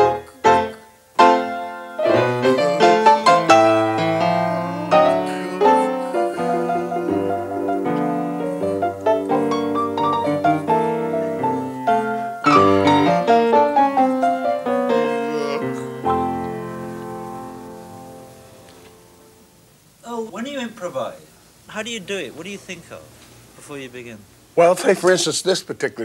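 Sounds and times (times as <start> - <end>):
jazz piano: 0.0 - 19.8.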